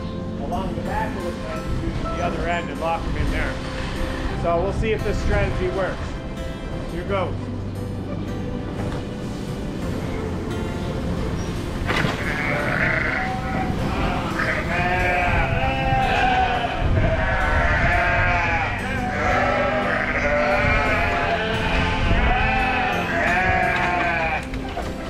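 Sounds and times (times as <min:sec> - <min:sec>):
sheep bleating: 0:12.0 - 0:24.5.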